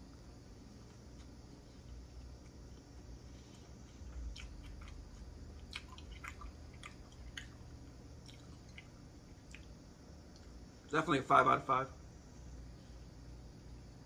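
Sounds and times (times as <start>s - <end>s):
person chewing food: 0.8s - 10.6s.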